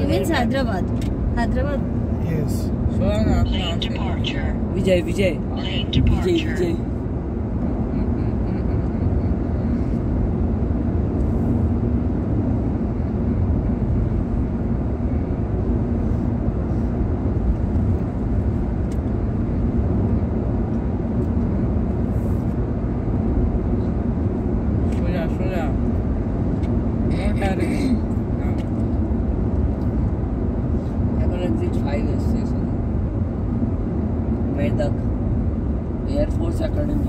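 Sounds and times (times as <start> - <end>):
in-cabin road noise: 0.0 - 37.0.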